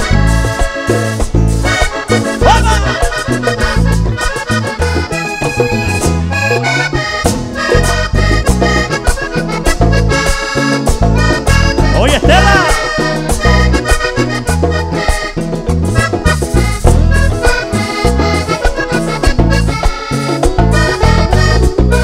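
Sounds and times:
bass: 0.0s - 22.0s
button accordion: 0.0s - 22.0s
electric guitar: 0.0s - 22.0s
percussion steady beat: 0.0s - 22.0s.

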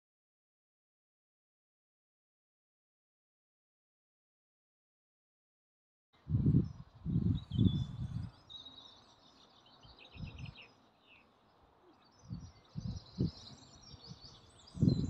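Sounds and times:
wind buffeting microphone: 6.2s - 8.4s, 10.1s - 10.6s, 12.2s - 15.0s
small birds chirping: 6.2s - 15.0s.

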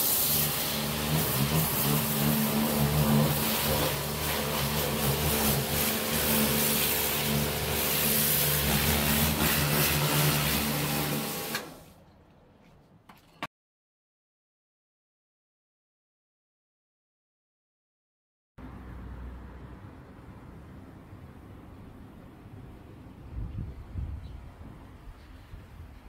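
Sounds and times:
water jet hissing on paving: 0.0s - 11.6s
pressure washer pump hum: 0.0s - 13.4s.

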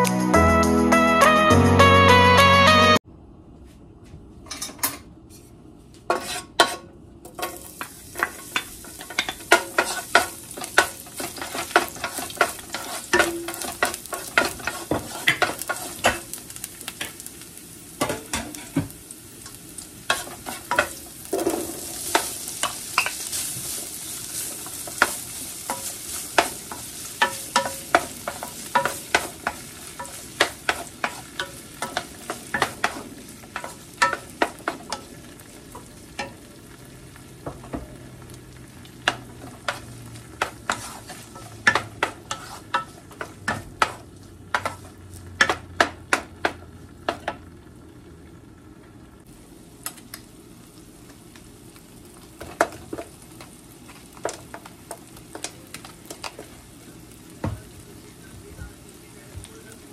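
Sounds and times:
wooden spatula scraping a pan: 6.1s - 6.8s, 8.2s - 16.3s, 20.1s - 35.0s, 39.0s - 45.6s
oil sizzling in a pan: 7.3s - 59.9s.

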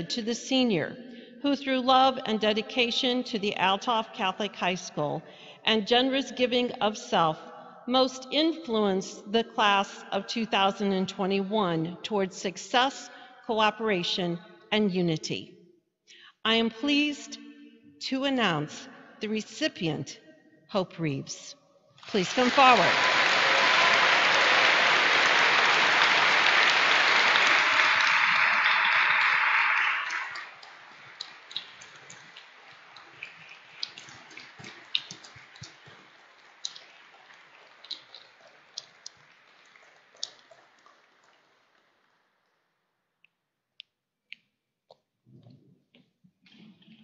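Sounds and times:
audience applauding: 22.1s - 32.1s.

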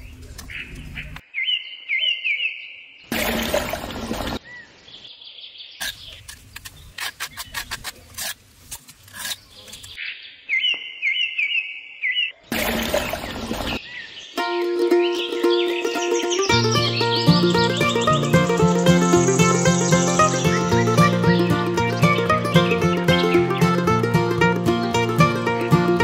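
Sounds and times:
trowel scraping mortar: 5.8s - 10.0s
small bird chirping: 15.0s - 23.6s.

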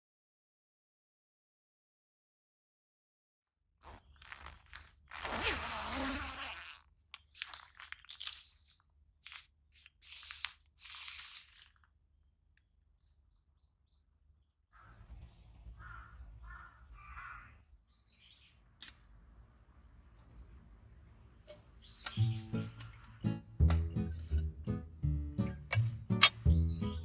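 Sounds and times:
tent door zipper pulled: 5.1s - 11.8s
birds chirping and calling: 13.0s - 19.3s, 21.5s - 23.4s, 25.8s - 27.0s.

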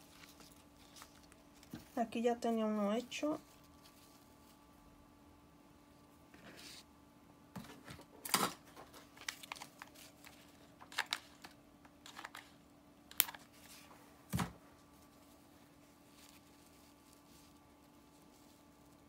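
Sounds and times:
paper and ribbon rustling: 0.0s - 4.6s, 8.8s - 12.6s, 13.2s - 13.9s, 14.8s - 19.0s.

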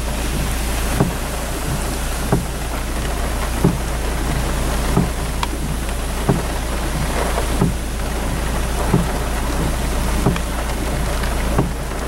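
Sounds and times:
heavy rain: 0.0s - 12.0s
soft thumps: 1.0s - 2.5s, 5.0s - 6.6s.

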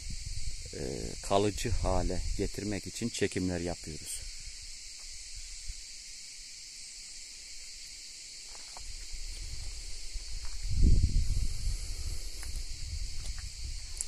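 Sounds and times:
wind rumble on microphone: 0.0s - 2.6s, 8.8s - 14.0s
high-pitched insect chorus: 0.0s - 14.0s.

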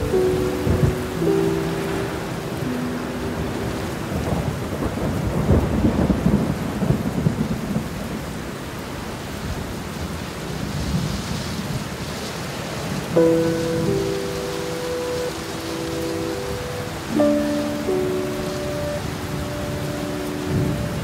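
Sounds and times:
heavy rain: 0.0s - 21.0s
low roll of thunder: 3.3s - 8.4s.

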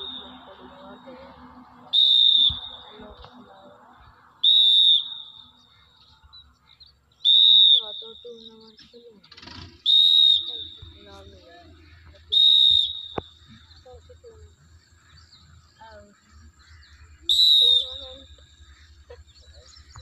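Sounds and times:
whistle short blasts: 0.0s - 0.5s, 1.9s - 3.2s, 4.4s - 5.5s, 7.2s - 8.4s, 9.7s - 11.0s, 12.3s - 13.4s, 17.3s - 18.3s.

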